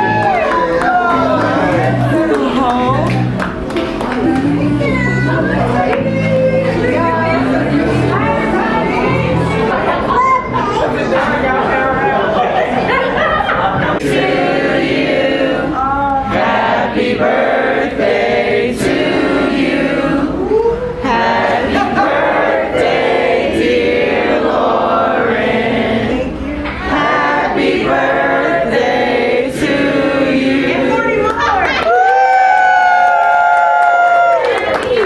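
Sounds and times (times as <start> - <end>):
group of people singing: 4.2 - 10.2, 10.8 - 31.6.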